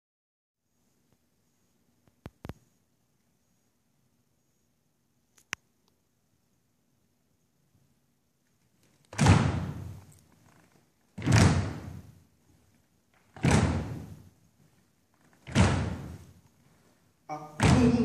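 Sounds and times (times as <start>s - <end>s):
heavy stomping thuds: 9.1s - 10.1s, 11.2s - 12.2s, 13.3s - 14.3s, 15.4s - 16.4s, 17.6s - 18.0s.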